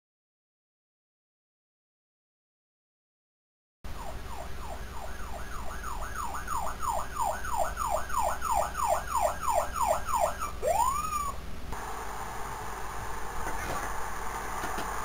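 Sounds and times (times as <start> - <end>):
fire engine siren: 3.9 - 11.4
low steady hum: 3.9 - 15.0.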